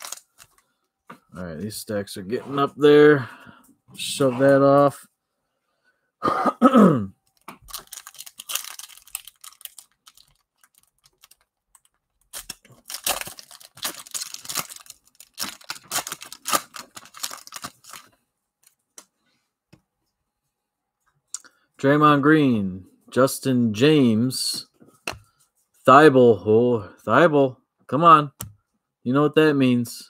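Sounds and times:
foil wrappers tearing: 0.0 - 0.6, 7.6 - 11.5, 12.2 - 18.1.

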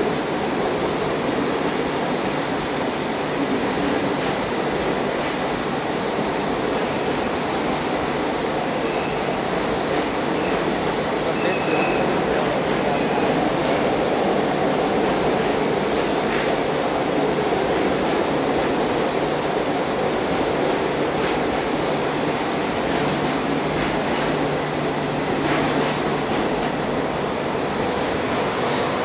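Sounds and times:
train wheels rumbling on rail: 0.0 - 29.0.

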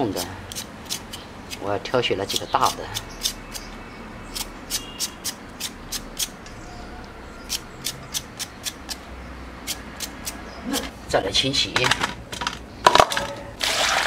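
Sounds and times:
peeler scraping potato skin: 0.0 - 3.7, 4.3 - 6.5, 7.4 - 9.0, 9.6 - 10.9.

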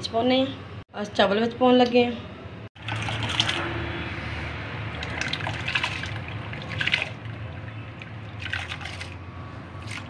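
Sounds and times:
syrup bubbling and splashing: 2.8 - 3.8, 4.7 - 10.0.

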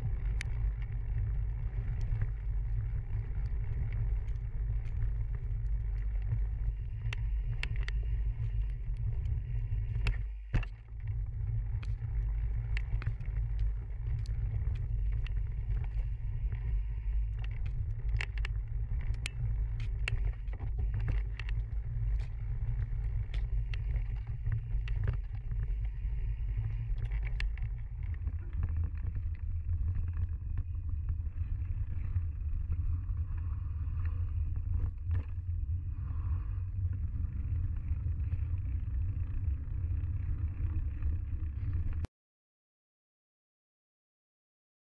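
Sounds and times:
wind and ground rumble: 0.0 - 42.1
bike clicking and rattling: 0.1 - 32.8.

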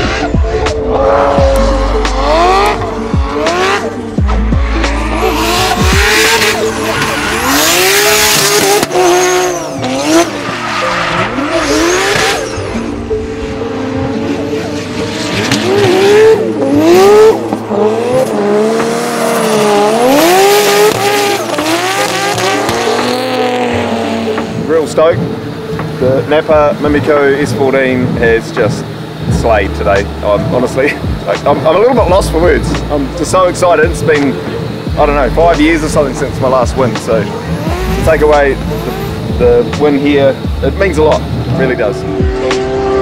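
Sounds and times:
car engine revving: 0.0 - 43.0
tyres squealing and skidding: 4.6 - 24.4.

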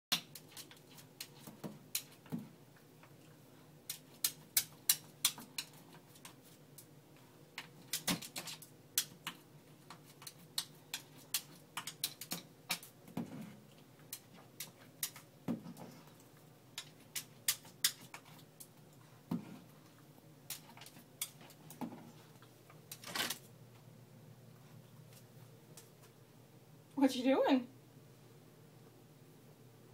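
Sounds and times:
dog claws clicking on mirror and tile: 3.9 - 6.9, 7.6 - 18.7, 20.4 - 22.0.

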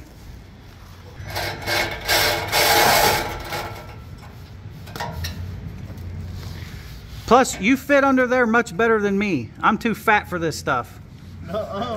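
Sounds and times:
power saw cutting steel pipe: 1.2 - 4.0.

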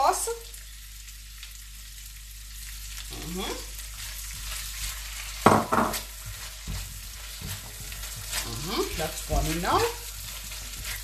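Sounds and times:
vegetables sizzling in a wok: 0.0 - 11.0
spatula scraping a wok: 3.2 - 11.0.

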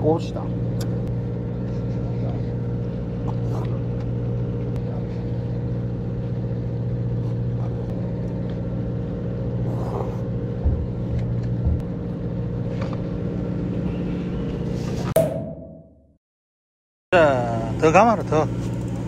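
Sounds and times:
boat engine humming: 0.0 - 14.6.

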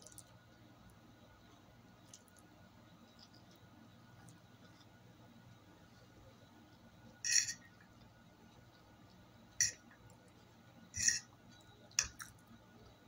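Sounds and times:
fork clinking and scraping on dish: 7.3 - 7.8, 9.6 - 9.8, 11.0 - 11.3.

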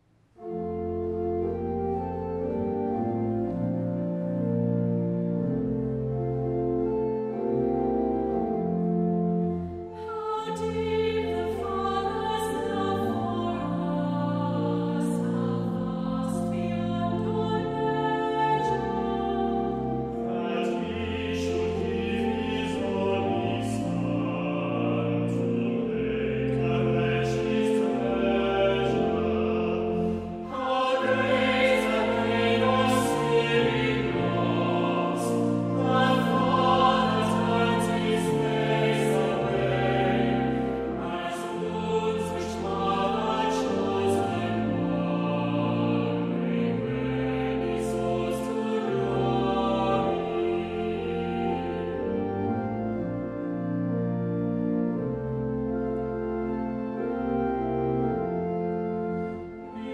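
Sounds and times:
choir singing held chords: 9.4 - 53.1, 59.2 - 59.9.

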